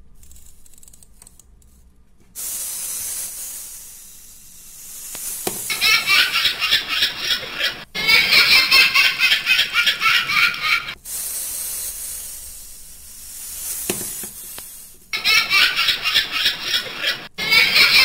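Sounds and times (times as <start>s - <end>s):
quiet hiss: 0.0s - 17.3s
toy laughing from speaker: 5.7s - 11.0s, 15.1s - 18.0s.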